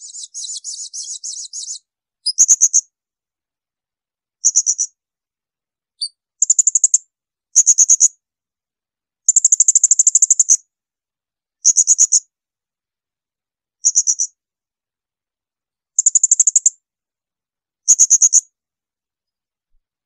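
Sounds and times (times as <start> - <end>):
parrot shrill rapid trills: 0.0 - 1.8.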